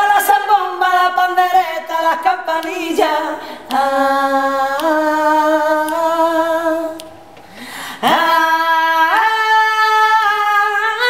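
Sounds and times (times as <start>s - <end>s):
woman singing unaccompanied: 0.0s - 7.3s, 7.9s - 11.0s.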